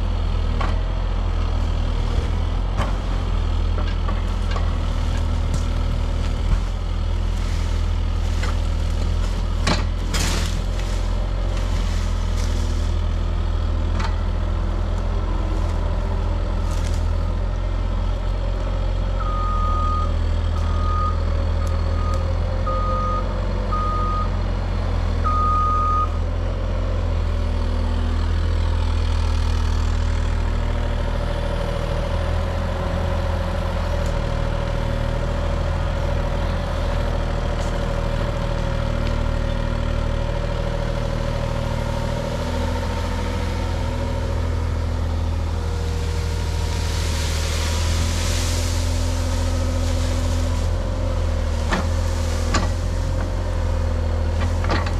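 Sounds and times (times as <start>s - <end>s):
diesel engine rumbling: 0.0s - 54.9s
brush rustling: 4.2s - 13.4s, 15.3s - 17.2s, 45.0s - 54.7s.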